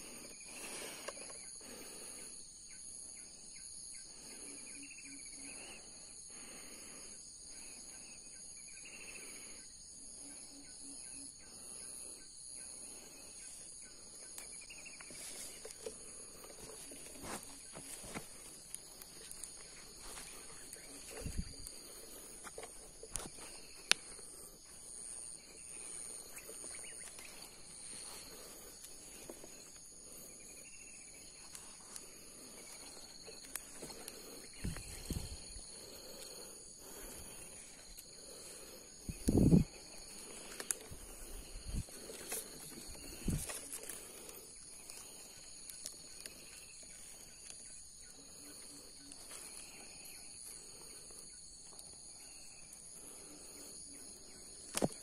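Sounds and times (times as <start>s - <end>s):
insects droning: 0.0s - 55.0s.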